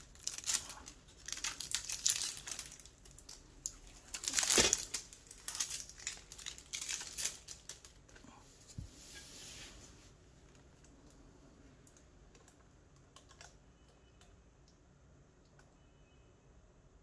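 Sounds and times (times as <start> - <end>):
packaging crinkling: 0.0 - 8.2.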